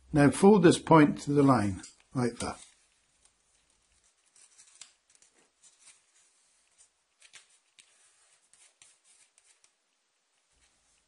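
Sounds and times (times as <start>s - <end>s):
paper rustling and crinkling: 1.3s - 9.8s.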